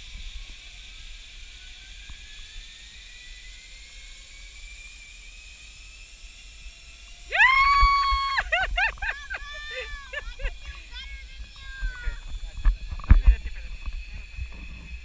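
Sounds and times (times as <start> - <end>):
person yelling: 7.3 - 11.0.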